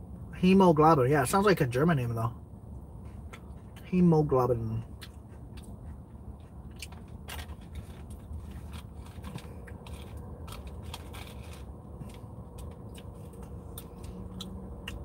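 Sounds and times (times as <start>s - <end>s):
low steady hum: 0.0s - 15.0s
crunchy bites of salad: 5.0s - 15.0s.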